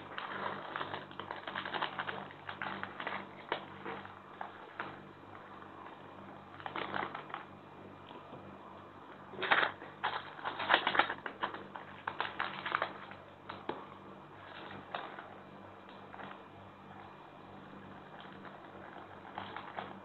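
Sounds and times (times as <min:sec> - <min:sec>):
plastic sachet crinkling: 0:00.0 - 0:07.5, 0:09.3 - 0:13.8, 0:18.0 - 0:20.0.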